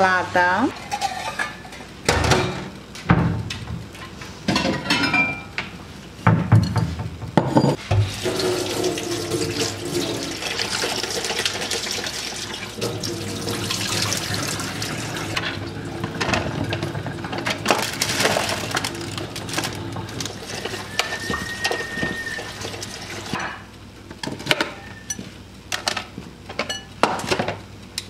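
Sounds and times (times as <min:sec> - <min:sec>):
tap water running into sink: 0:07.9 - 0:17.6.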